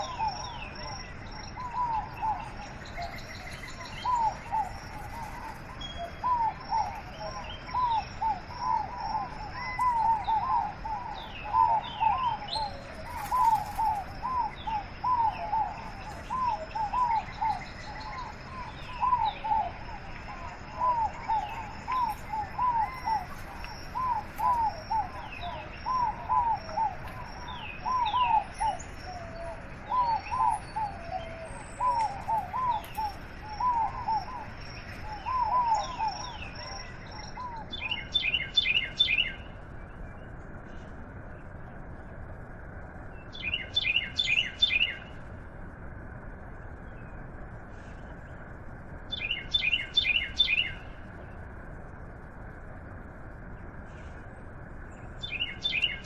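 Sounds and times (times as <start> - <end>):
bird calling clear notes: 0.0 - 39.5
high steady bird trill: 0.0 - 41.6, 43.0 - 45.2, 46.7 - 51.5, 54.8 - 56.0.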